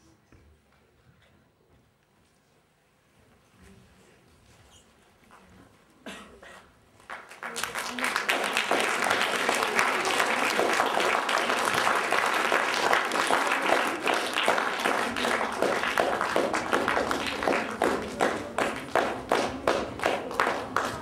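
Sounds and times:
audience applauding: 0:07.0 - 0:21.0
rhythmic clapping in unison: 0:07.0 - 0:21.0.

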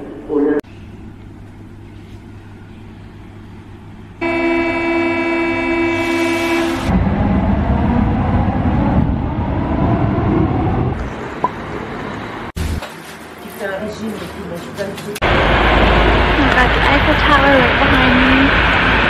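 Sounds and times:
buzzing door warning tone: 0:04.2 - 0:06.9
train running rumble: 0:14.0 - 0:19.0.

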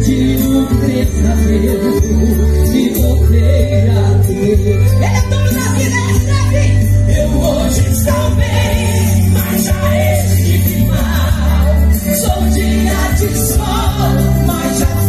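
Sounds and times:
gospel band playing: 0:00.0 - 0:15.0
steady bass: 0:00.0 - 0:15.0
voices singing a melody: 0:07.1 - 0:15.0.

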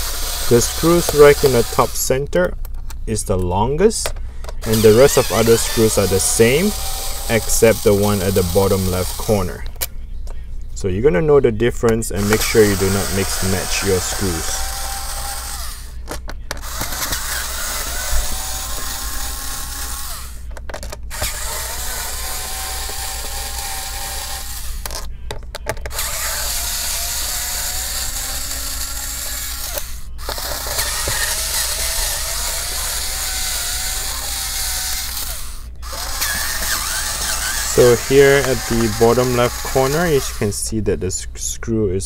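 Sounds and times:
electric screwdriver whirring: 0:00.0 - 0:02.0, 0:04.6 - 0:09.6, 0:12.2 - 0:16.0, 0:16.6 - 0:20.5, 0:21.1 - 0:25.1, 0:25.9 - 0:40.6.

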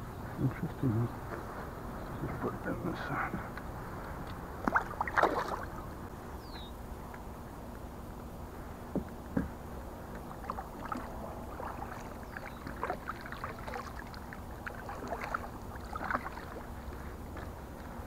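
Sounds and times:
steady low rumble: 0:00.0 - 0:18.0
water drips and small splashes: 0:04.6 - 0:05.9, 0:10.1 - 0:16.8
paddle strokes through water: 0:10.1 - 0:18.0.

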